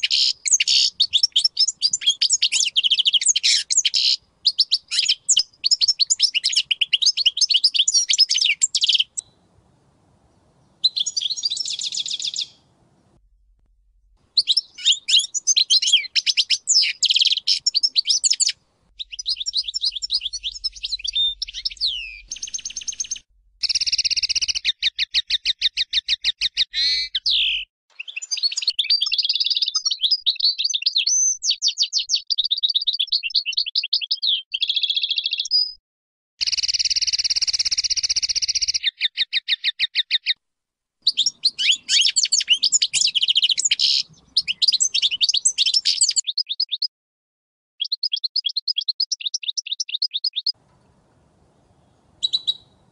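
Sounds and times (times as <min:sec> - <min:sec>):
goldfinch singing: 0:00.0 - 0:09.4, 0:10.8 - 0:12.6, 0:14.3 - 0:31.0, 0:41.0 - 0:46.9, 0:52.2 - 0:52.8.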